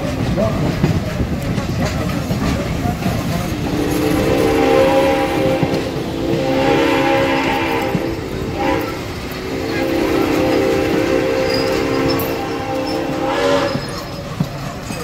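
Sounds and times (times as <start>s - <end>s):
train cars rumbling on rails: 0.0s - 15.0s
steam train chime whistle: 3.6s - 14.4s.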